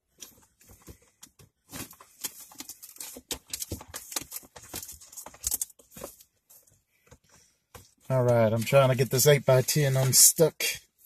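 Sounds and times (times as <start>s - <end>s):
packaging rustling and crinkling: 0.2s - 6.3s.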